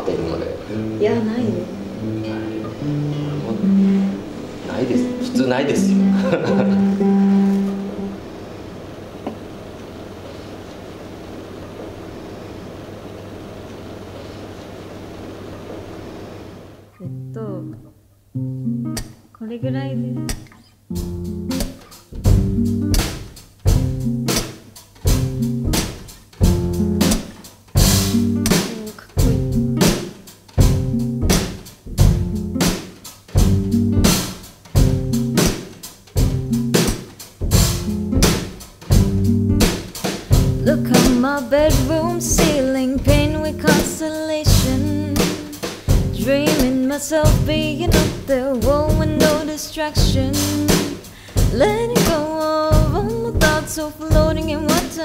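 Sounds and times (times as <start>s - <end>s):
soft drum kit: 0.0s - 8.2s, 18.8s - 55.0s
acoustic guitar strumming: 0.0s - 14.0s, 14.7s - 55.0s
woman singing: 19.4s - 20.3s, 28.5s - 29.4s, 40.6s - 55.0s.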